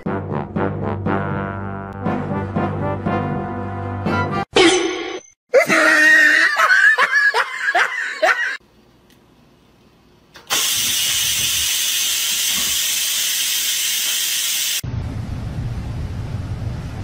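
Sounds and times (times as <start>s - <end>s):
person laughing: 5.5s - 8.6s.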